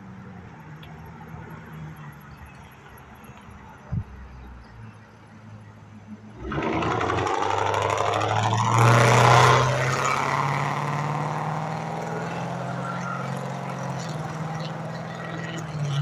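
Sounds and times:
car accelerating hard past: 6.4 - 16.0.

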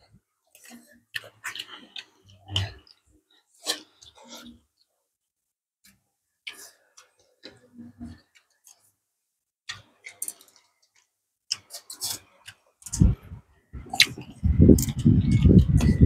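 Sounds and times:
chewing sounds: 0.5 - 4.6, 9.7 - 13.2, 13.8 - 16.0.

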